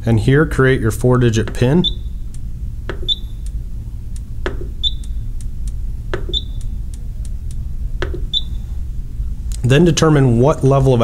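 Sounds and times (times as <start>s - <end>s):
steady low hum: 0.0s - 11.0s
knob turning clicks: 1.5s - 8.6s
short high beeps: 1.8s - 2.2s, 3.0s - 3.4s, 4.8s - 5.2s, 6.2s - 6.7s, 8.3s - 8.7s
knob being pressed knock: 2.9s - 3.5s, 4.4s - 5.2s, 6.1s - 6.7s, 8.0s - 8.6s.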